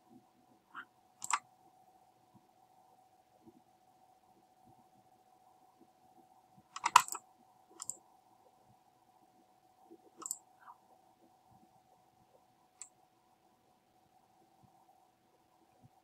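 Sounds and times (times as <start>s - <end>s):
faint steady hum: 0.0s - 16.0s
computer mouse clicks: 0.8s - 1.4s, 6.7s - 7.2s, 7.8s - 8.0s, 10.1s - 10.8s.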